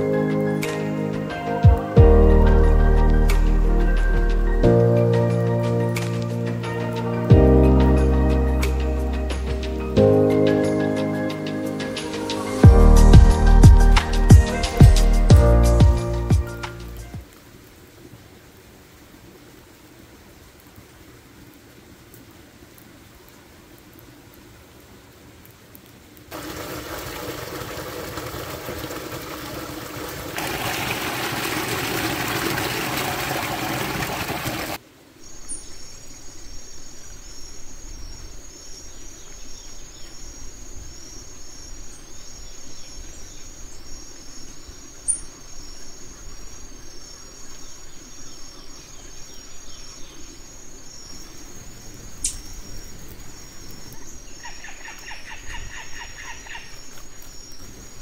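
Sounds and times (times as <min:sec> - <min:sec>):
forest background: 0:00.0 - 0:58.0
mountain stream rushing: 0:00.0 - 0:58.0
sharp snaps: 0:05.9 - 0:06.4.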